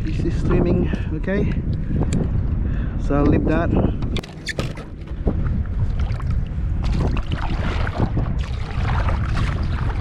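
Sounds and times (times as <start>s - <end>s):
wind rumble on microphone: 0.0s - 10.0s
water splashing around kayak: 4.2s - 10.0s.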